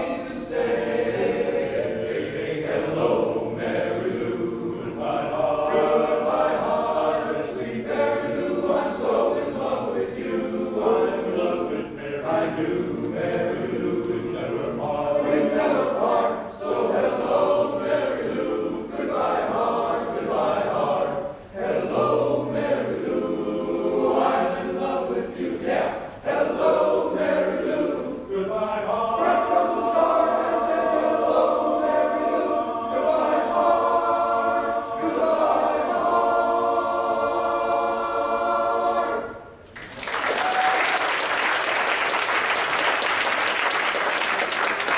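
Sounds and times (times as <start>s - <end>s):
men's chorus singing: 0.0s - 39.5s
audience applause: 39.7s - 44.9s.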